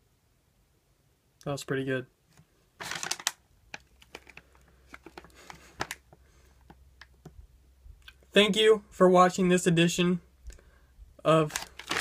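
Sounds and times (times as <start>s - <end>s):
handling rustle: 2.3s - 6.8s, 11.4s - 12.0s.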